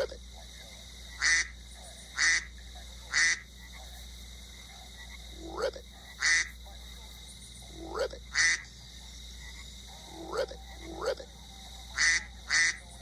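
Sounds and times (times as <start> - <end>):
duck quacking: 1.1 - 1.5, 2.1 - 2.5, 3.1 - 3.8, 5.4 - 6.5, 7.8 - 8.6, 12.0 - 12.8.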